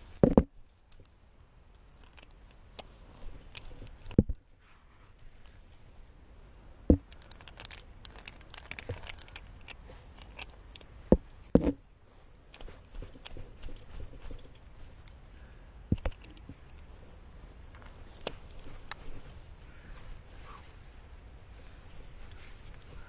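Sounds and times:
carabiners clinking: 0:00.0 - 0:04.4, 0:06.9 - 0:16.9, 0:17.7 - 0:21.0.

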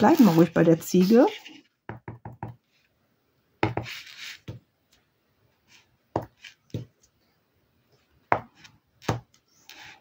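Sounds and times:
scratchy rustle: 0:00.0 - 0:01.7.

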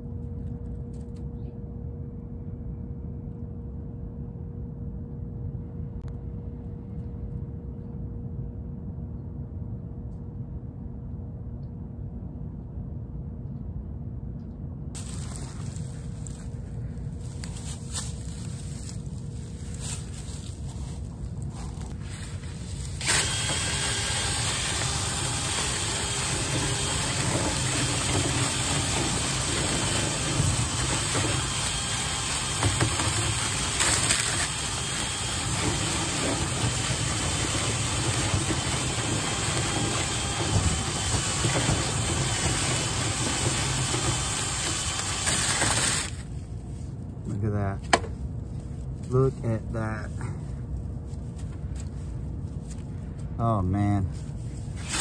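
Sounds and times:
low steady hum: 0:00.0 - 0:55.0
cordless drill spinning: 0:22.3 - 0:46.3.

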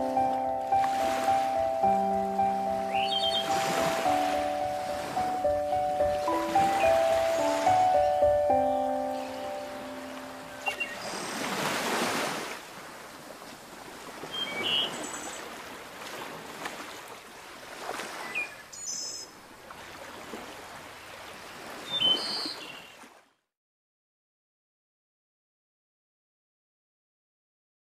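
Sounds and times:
sea waves washing in: 0:00.0 - 0:18.4
high-pitched chirps: 0:01.1 - 0:11.0.

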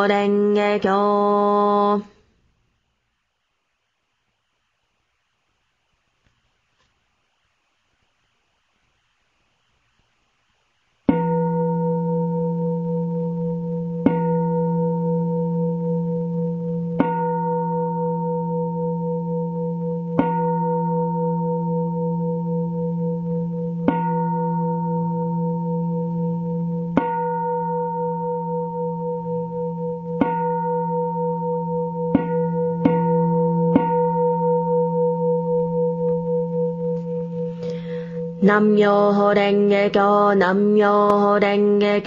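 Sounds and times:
bowl bell ringing: 0:11.1 - 0:38.6.

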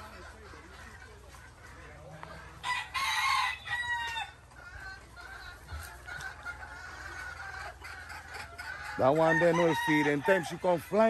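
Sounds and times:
chickens clucking faintly: 0:00.0 - 0:11.0
rooster crowing: 0:02.6 - 0:04.4, 0:09.0 - 0:10.6.

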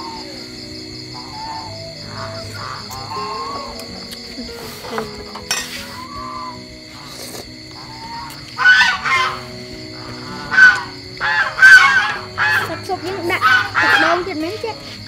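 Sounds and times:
soft instrumental music: 0:00.0 - 0:15.0
slurping soup: 0:07.0 - 0:07.6.

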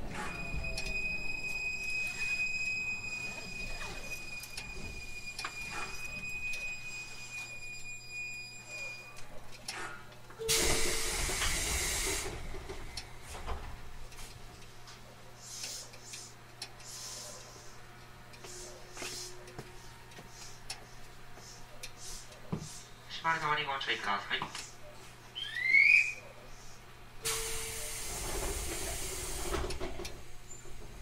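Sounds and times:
electric train whine: 0:00.0 - 0:09.3, 0:10.4 - 0:14.2, 0:27.2 - 0:31.0
compressed air hiss: 0:10.5 - 0:12.4.

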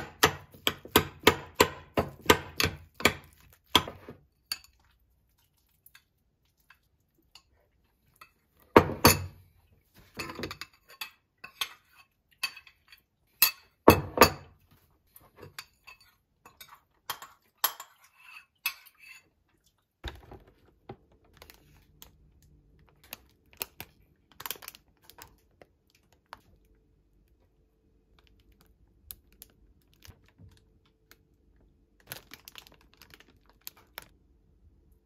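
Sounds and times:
bowl and spoon clinking: 0:10.0 - 0:14.6, 0:15.3 - 0:19.3
plastic bags rustling: 0:21.3 - 0:26.4, 0:31.9 - 0:34.1.

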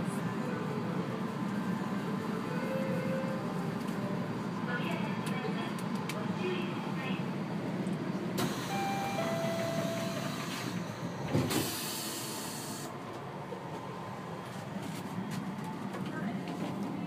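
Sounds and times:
monorail car low hum: 0:00.0 - 0:17.0
loud hiss of released air: 0:11.4 - 0:12.9.

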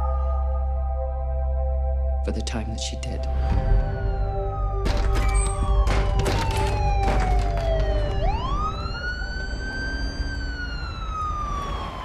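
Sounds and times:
siren wailing: 0:03.8 - 0:12.0.

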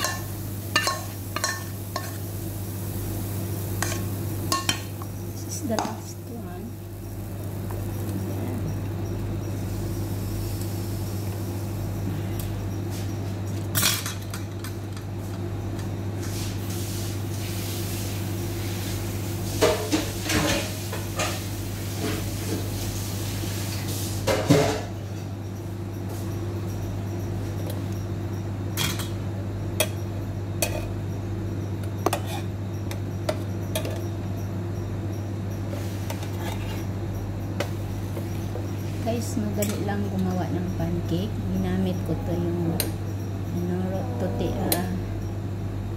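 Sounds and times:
cookware clinking: 0:00.0 - 0:02.2.

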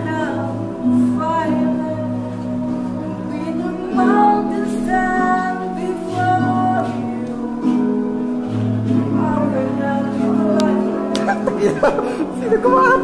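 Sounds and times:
instrumental accompaniment: 0:00.0 - 0:13.0
man singing: 0:09.2 - 0:13.0.

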